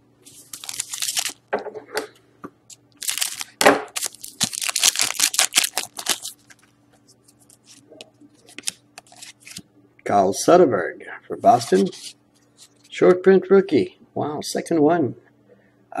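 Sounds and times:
foil wrapper crinkling and tearing: 0.3 - 1.4, 3.0 - 6.7.

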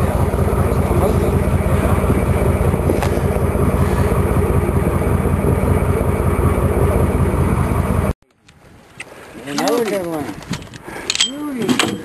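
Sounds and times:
boat engine running: 0.0 - 10.8
wind buffeting microphone: 0.0 - 11.0.

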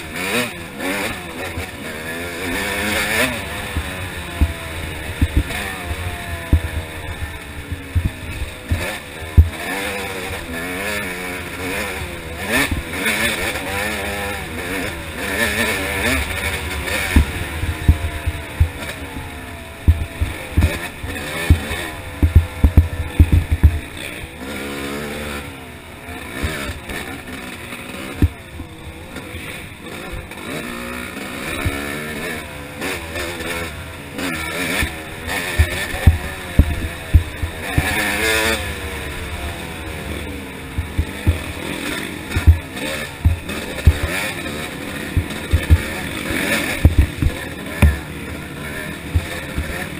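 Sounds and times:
dirt bike engine revving: 0.0 - 49.9
low thumps: 6.4 - 9.6, 17.1 - 19.2, 19.9 - 23.9, 35.5 - 38.2, 40.8 - 41.6, 42.3 - 44.1, 45.2 - 46.0, 46.8 - 48.0.

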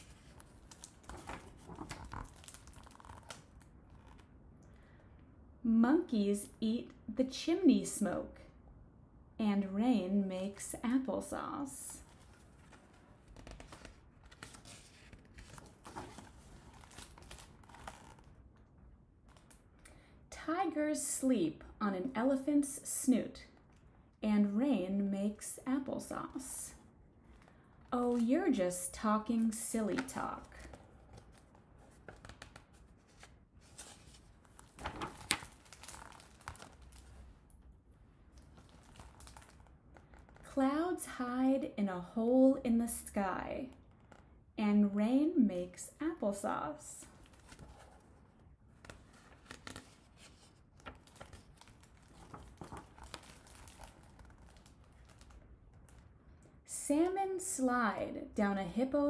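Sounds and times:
paper pages turning: 0.0 - 4.3, 12.0 - 18.4, 29.4 - 37.4, 38.3 - 40.4, 47.1 - 56.0.

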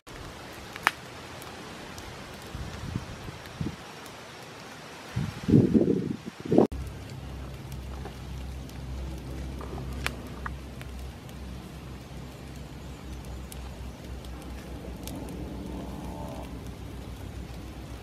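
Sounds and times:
fire crackles and pops: 0.0 - 18.0
charcoal fire hissing: 0.1 - 18.0
low rumble: 6.7 - 18.0.

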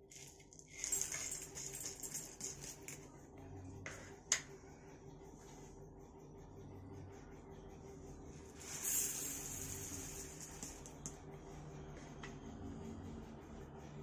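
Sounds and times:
seeds poured into steel bowl: 8.6 - 10.8.

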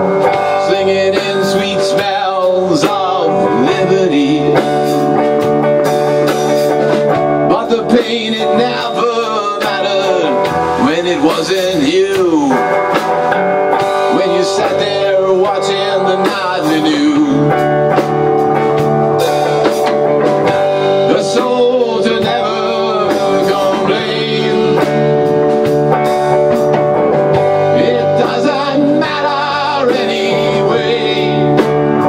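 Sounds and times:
blues-rock band playing: 0.0 - 32.0.

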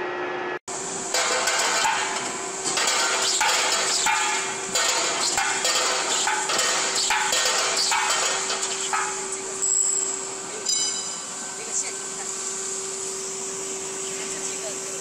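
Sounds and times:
machine hum and whine: 0.0 - 15.0.

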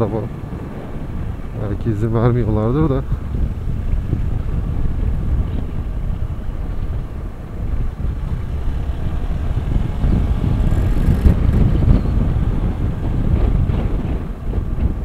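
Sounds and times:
wind rumble on microphone: 0.0 - 15.0
motorcycle engine running: 3.3 - 13.7.

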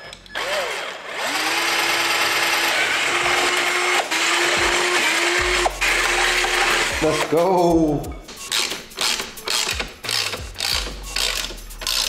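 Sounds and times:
cordless drill drilling plastic: 0.4 - 7.3.

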